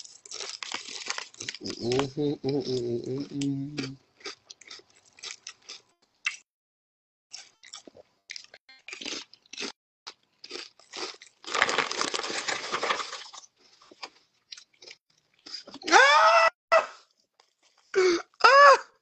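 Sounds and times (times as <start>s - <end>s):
chip bag crinkling: 0.0s - 2.1s, 10.8s - 13.5s
chewing crunchy chips: 0.0s - 6.4s, 7.3s - 15.9s.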